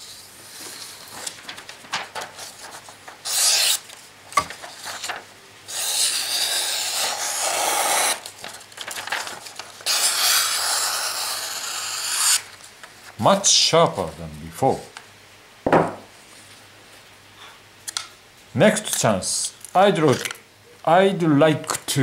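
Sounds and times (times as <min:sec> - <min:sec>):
knife slicing paper: 0:01.9 - 0:12.5.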